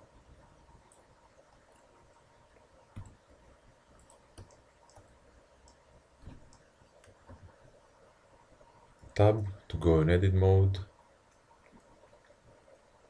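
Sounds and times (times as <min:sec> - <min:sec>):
room hiss: 0:00.0 - 0:13.0.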